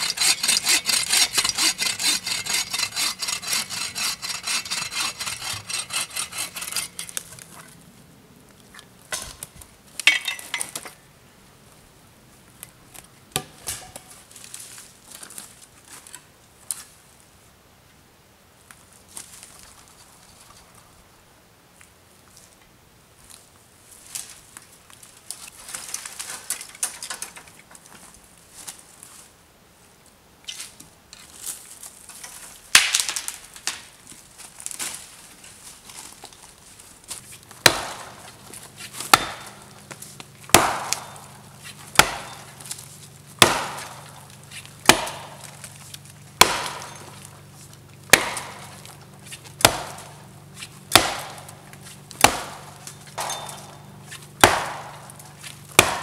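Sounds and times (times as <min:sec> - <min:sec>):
axe chopping tree trunk: 0:13.3 - 0:14.0, 0:37.6 - 0:42.8, 0:43.4 - 0:47.3, 0:48.1 - 0:56.0
dry branches snapping: 0:32.7 - 0:33.9, 0:37.2 - 0:56.0.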